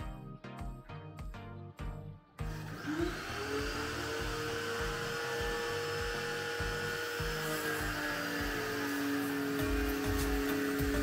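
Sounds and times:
pressure washer motor whine: 2.4s - 11.0s.

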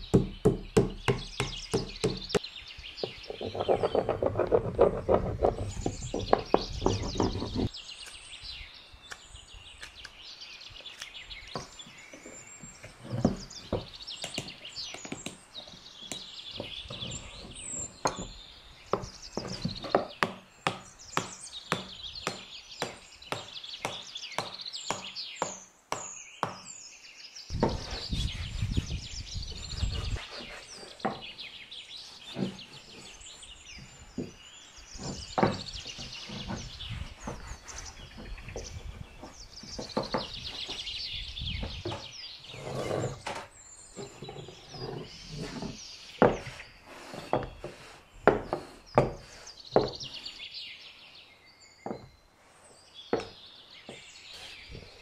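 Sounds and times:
small birds chirping: 0.0s - 55.0s
rubbing noises: 3.1s - 7.7s, 27.5s - 40.9s, 41.6s - 50.3s.

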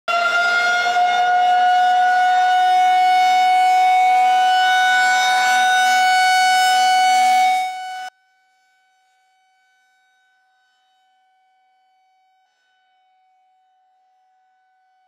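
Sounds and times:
warning siren steady tone: 0.1s - 8.1s.

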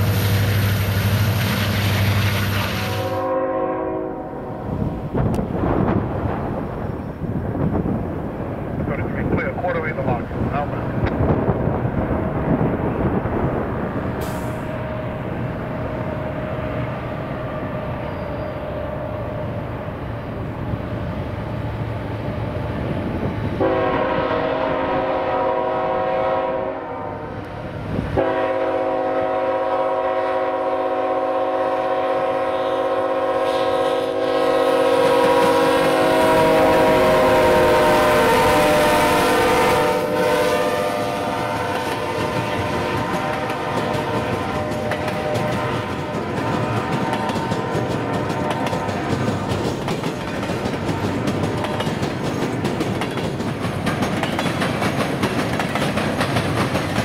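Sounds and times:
freight train rumble: 0.0s - 57.0s
train air horn: 2.4s - 4.8s, 23.6s - 27.5s, 28.2s - 49.2s.

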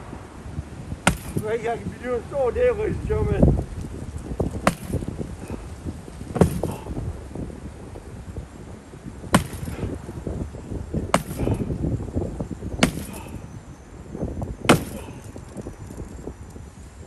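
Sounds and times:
hatchet chopping wooden frame: 1.0s - 1.4s, 4.6s - 5.2s, 6.3s - 6.8s, 9.3s - 10.0s, 11.1s - 11.7s, 12.8s - 13.3s, 14.7s - 15.3s.

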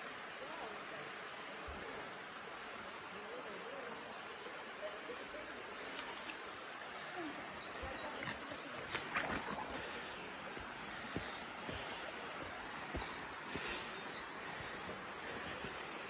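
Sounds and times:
stream rushing: 0.0s - 16.0s
footsteps on dirt trail: 8.9s - 16.0s.

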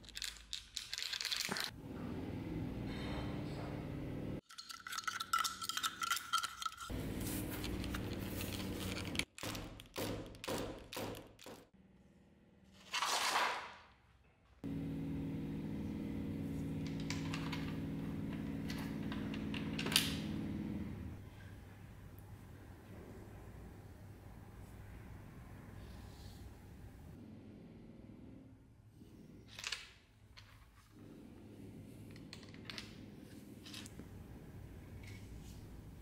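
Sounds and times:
steady low hum: 14.6s - 29.6s.

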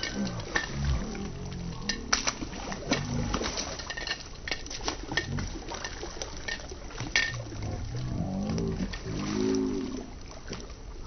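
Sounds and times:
fish splashing in water: 0.0s - 11.0s
low humming: 0.0s - 11.0s.

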